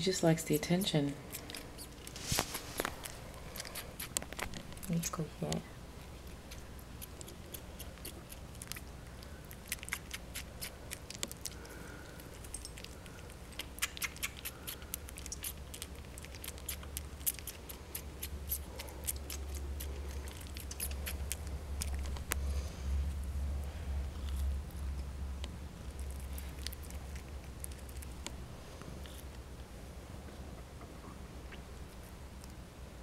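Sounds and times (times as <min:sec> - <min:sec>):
low steady rumble: 0:00.0 - 0:33.0
kitten sucking clicks and smacks: 0:01.1 - 0:22.4, 0:23.1 - 0:29.7.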